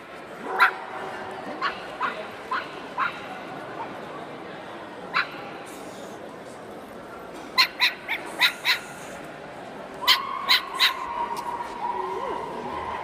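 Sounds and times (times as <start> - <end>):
dog barking: 0.4 - 0.8.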